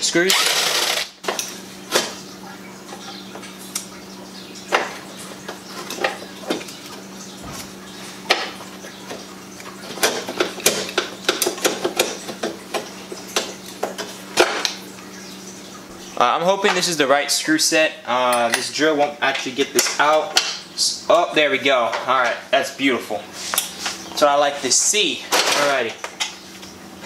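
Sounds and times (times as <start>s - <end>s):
hand tool clinking on metal: 18.3s - 18.7s.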